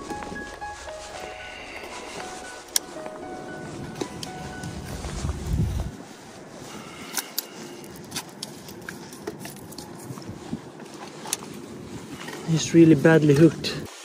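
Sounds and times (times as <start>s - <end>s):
low rumble: 0.0s - 6.7s
fishing gear clicks and scrapes: 6.8s - 11.6s.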